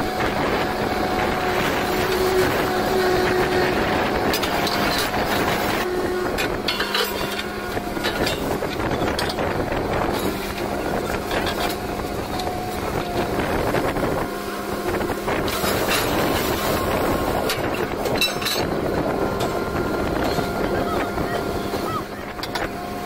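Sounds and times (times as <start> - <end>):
drilling rig engine droning: 0.0 - 23.0.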